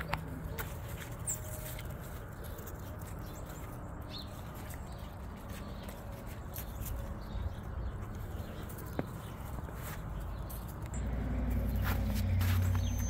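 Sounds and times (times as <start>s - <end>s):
dogs scuffing on frozen ground: 0.1s - 13.0s
high bird chirp: 10.2s - 13.0s
low rumble: 10.9s - 13.0s.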